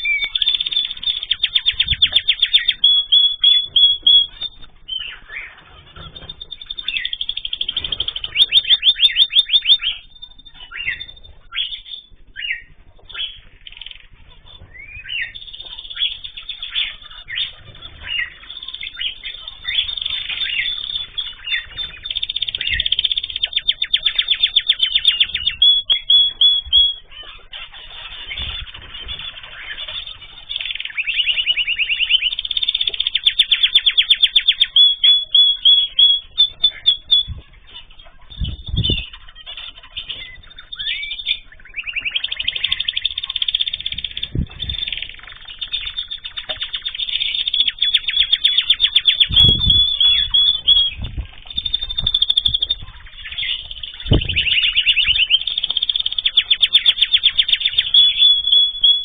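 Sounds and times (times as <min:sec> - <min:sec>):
canary singing trills: 0:00.0 - 0:59.0.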